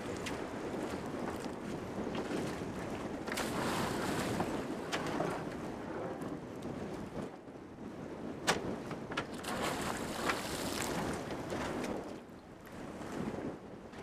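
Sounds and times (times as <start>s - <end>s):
sea noise: 0.0s - 6.1s, 9.3s - 12.1s
wind buffeting microphone: 0.0s - 14.0s
knocks and splashes: 3.2s - 5.4s, 8.5s - 12.1s.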